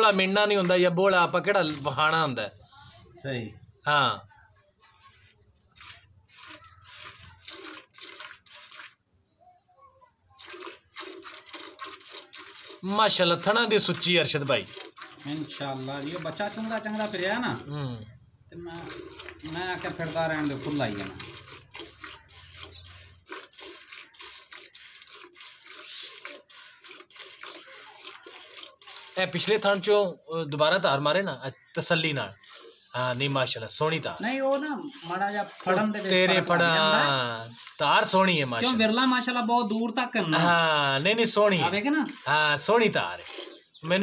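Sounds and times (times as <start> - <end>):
milk squirting into metal bucket: 0.0 - 2.4, 5.0 - 9.1, 10.3 - 17.7, 18.6 - 29.9, 31.5 - 39.0, 40.3 - 44.0.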